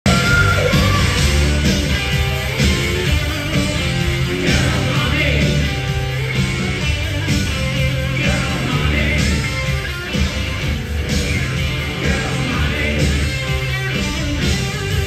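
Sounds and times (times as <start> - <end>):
hard rock band playing live: 0.0 - 15.0
person singing: 4.2 - 5.8, 8.1 - 9.6, 11.9 - 13.5.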